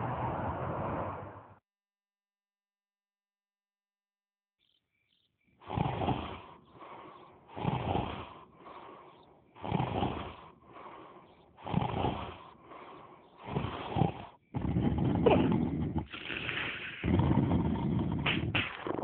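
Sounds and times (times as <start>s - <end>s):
person snoring: 5.6s - 19.0s
quiet breath: 5.7s - 18.4s.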